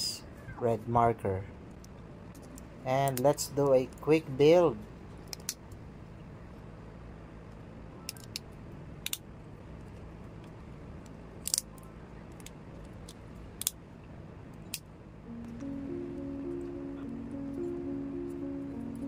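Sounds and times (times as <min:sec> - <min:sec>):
plastic parts snapping together: 0:11.4 - 0:11.7
faint steady hiss: 0:15.2 - 0:19.0.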